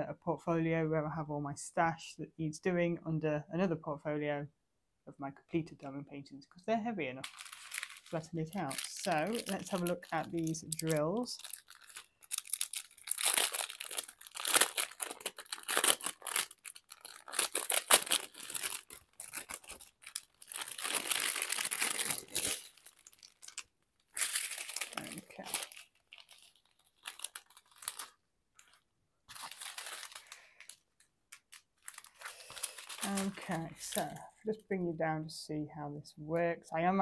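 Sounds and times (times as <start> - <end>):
thin plastic crinkling: 7.2 - 34.7.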